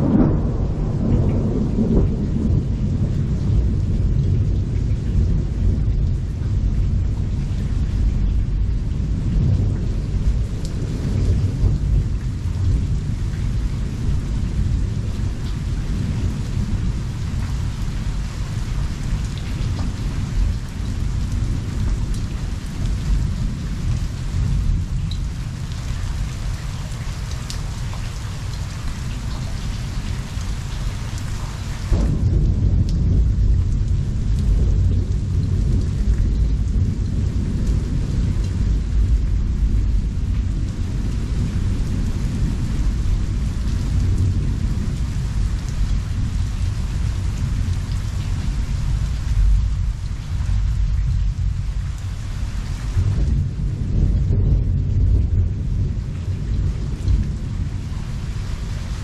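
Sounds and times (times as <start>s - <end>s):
loud thunder peal: 0.0s - 4.6s, 31.9s - 45.5s
deep rolling thunder: 0.0s - 31.3s, 31.9s - 59.0s
steady rain falling: 0.0s - 59.0s.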